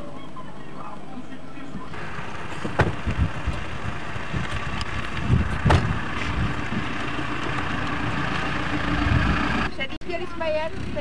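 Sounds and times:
wind rumbling on microphone: 2.5s - 9.7s.

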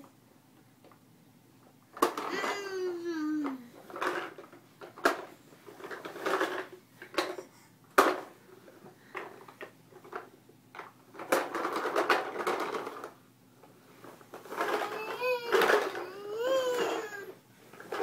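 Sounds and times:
plastic toy truck rattling: 3.4s - 7.4s, 9.1s - 13.2s, 14.1s - 18.0s.

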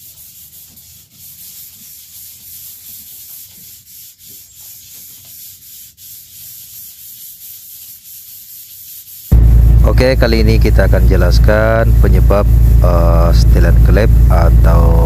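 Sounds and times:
cords rubbing on crankshaft journals: 0.0s - 10.1s.

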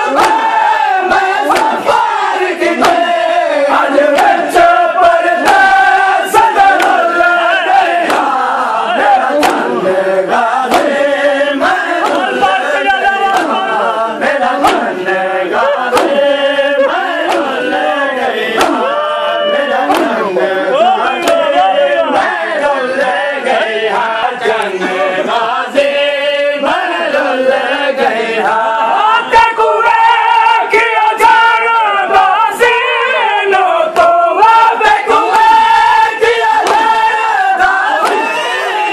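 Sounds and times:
men chanting a lament: 0.0s - 38.9s
chest-beating strikes: 11.9s - 13.9s.

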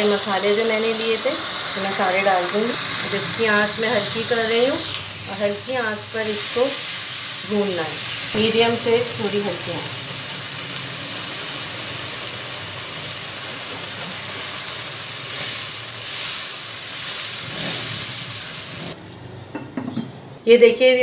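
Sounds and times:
spices sizzling in hot fat: 0.0s - 19.0s.

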